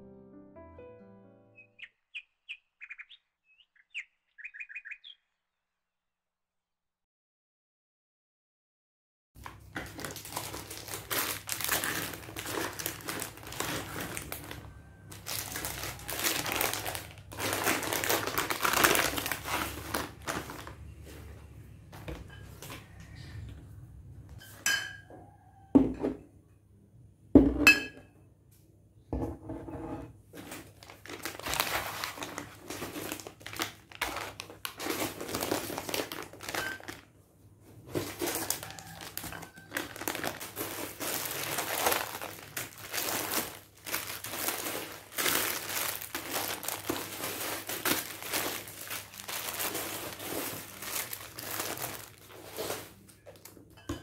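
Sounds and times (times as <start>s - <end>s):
plastic packaging crinkling: 9.4s - 21.3s, 30.4s - 37.1s, 37.8s - 53.6s.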